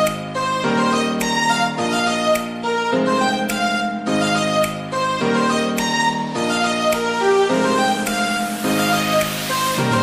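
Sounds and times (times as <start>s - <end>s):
electronic dance music: 7.8s - 10.0s.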